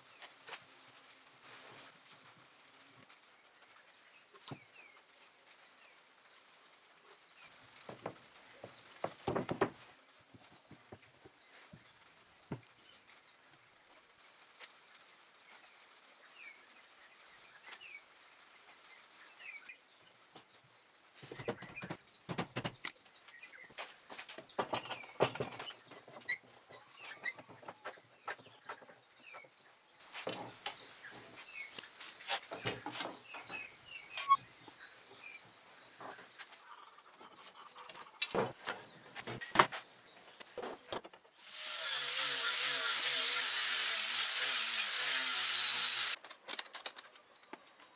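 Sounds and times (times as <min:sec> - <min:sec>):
high insect buzz: 0:30.0 - 0:47.9
orbital sander running: 0:41.4 - 0:46.2.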